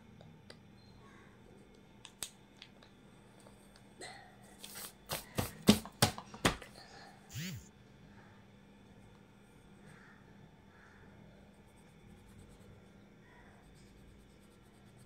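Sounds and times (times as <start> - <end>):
hand brushing across paper: 4.6 - 5.7
pencil scratching on paper: 13.4 - 15.0.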